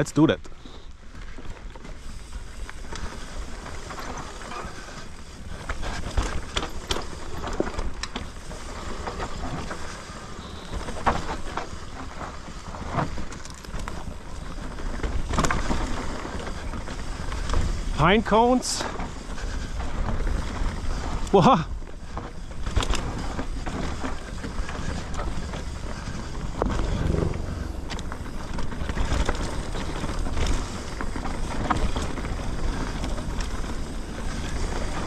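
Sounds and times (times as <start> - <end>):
bike tyres on dirt: 0.5 - 35.0
wind on microphone: 26.2 - 29.4.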